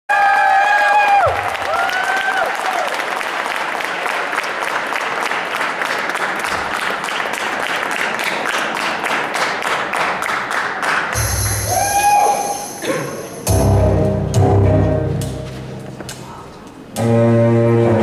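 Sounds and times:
audience applauding: 0:00.1 - 0:12.6
held high sustained tone: 0:11.2 - 0:13.6
low bass note: 0:13.5 - 0:15.9.

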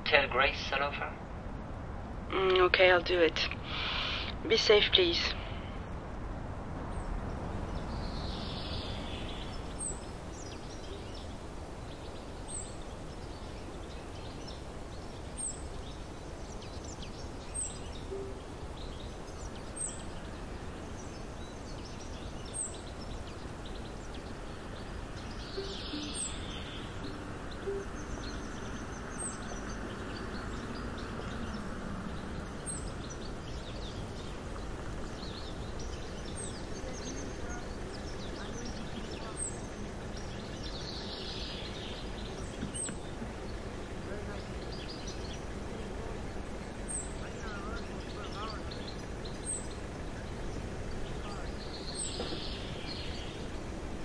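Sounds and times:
low outdoor noise: 0:00.0 - 0:54.0
car tyre hiss: 0:03.6 - 0:04.4.

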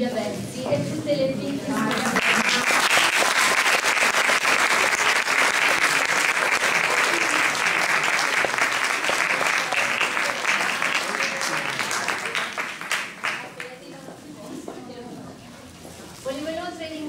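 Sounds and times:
audience clapping: 0:01.7 - 0:13.9.

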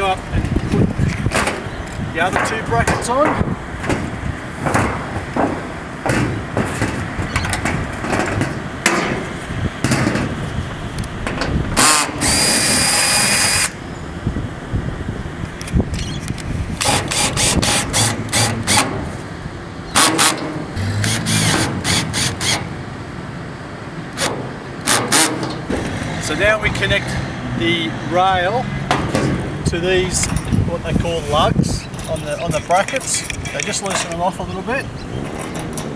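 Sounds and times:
clicks and knocks on metal roof: 0:01.3 - 0:01.7, 0:02.3 - 0:10.4
cordless drill whining: 0:11.8 - 0:13.8.

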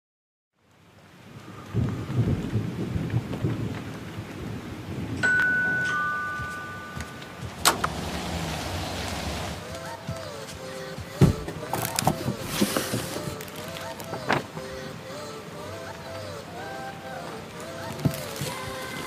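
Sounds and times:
rain: 0:00.6 - 0:19.0
thunder rumbling: 0:01.3 - 0:09.7
held chime tones: 0:05.2 - 0:07.4.

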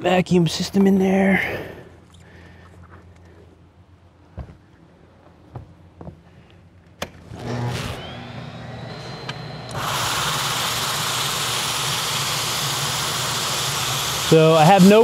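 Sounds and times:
motor humming and whining: 0:07.0 - 0:15.0.

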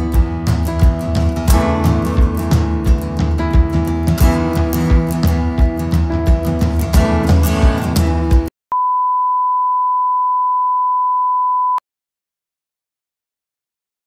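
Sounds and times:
background music with steady beat: 0:00.0 - 0:08.5
steady test-tone beep: 0:08.7 - 0:11.8.

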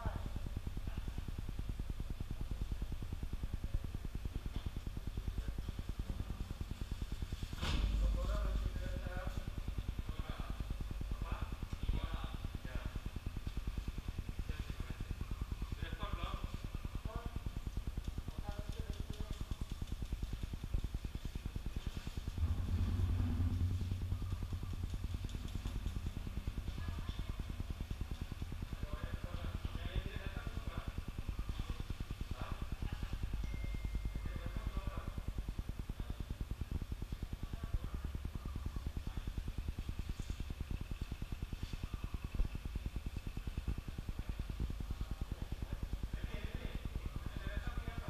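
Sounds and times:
machine pulsing: 0:00.0 - 0:48.0
small engine throbbing: 0:00.0 - 0:48.0
louder hum: 0:06.2 - 0:12.3, 0:21.2 - 0:28.9.

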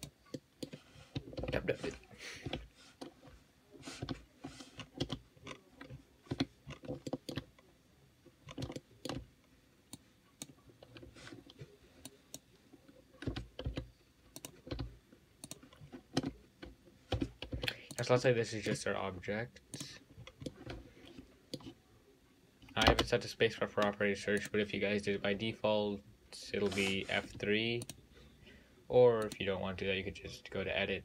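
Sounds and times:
computer keyboard keys clicking: 0:04.8 - 0:05.2, 0:08.5 - 0:09.2.

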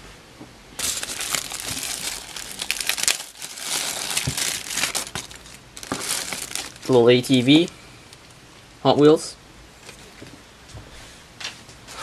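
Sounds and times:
plastic bag crinkling: 0:00.8 - 0:08.4.

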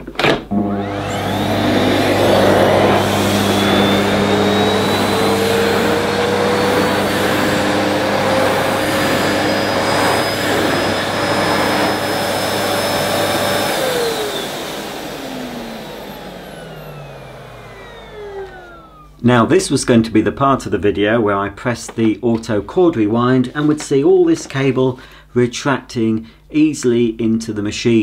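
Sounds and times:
vacuum cleaner motor whine: 0:00.5 - 0:19.2.

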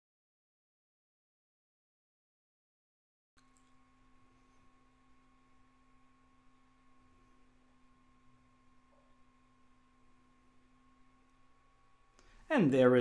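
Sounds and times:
faint steady hum: 0:03.4 - 0:13.0.

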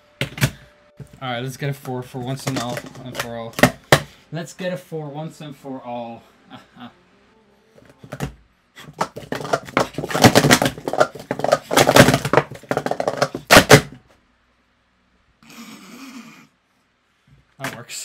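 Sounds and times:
plastic cups clattering: 0:02.2 - 0:04.1, 0:08.0 - 0:14.0.

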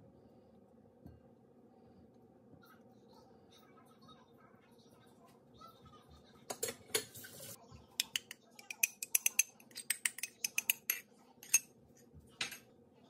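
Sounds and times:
spoon clinking against bowl: 0:08.0 - 0:11.7.

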